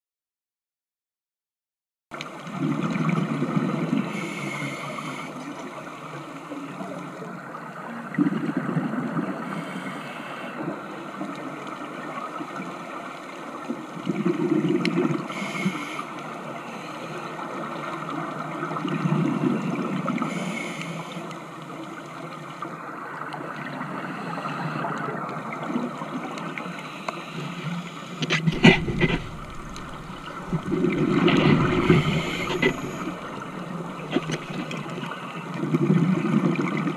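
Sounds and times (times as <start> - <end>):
exhaled bubbles underwater: 2.4 - 5.2, 6.8 - 13.0, 14.0 - 15.5, 22.8 - 36.9
low rumble: 28.5 - 34.8.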